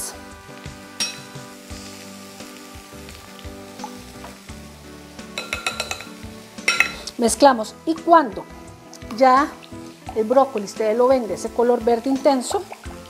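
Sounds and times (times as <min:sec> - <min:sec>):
vegetables sizzling in a skillet: 0:00.0 - 0:13.0
spoon knocking against bowl: 0:05.4 - 0:07.0.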